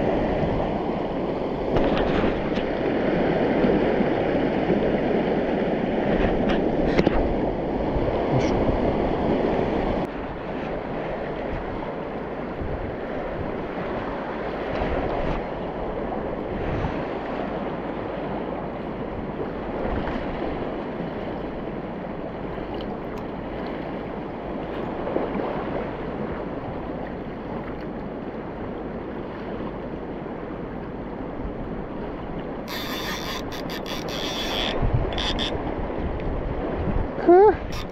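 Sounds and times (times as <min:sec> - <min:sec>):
river water running over stones: 0:37.5 - 0:37.9.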